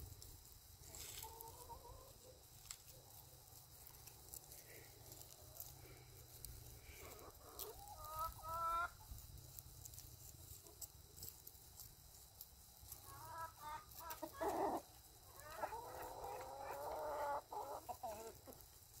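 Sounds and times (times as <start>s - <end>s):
chickens clucking and calling: 0.4s - 9.3s, 12.8s - 19.0s.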